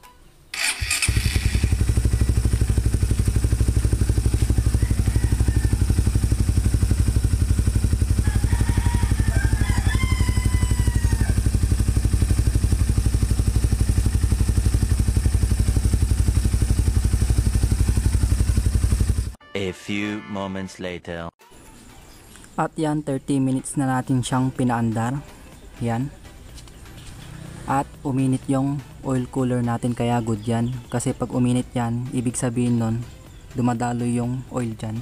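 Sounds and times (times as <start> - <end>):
motorcycle engine idling: 0.6 - 19.4, 26.1 - 35.0.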